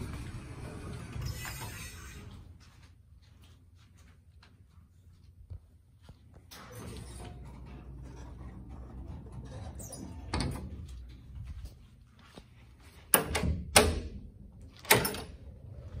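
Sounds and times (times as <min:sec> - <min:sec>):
door latch clacks and knocks: 0:13.2 - 0:14.2.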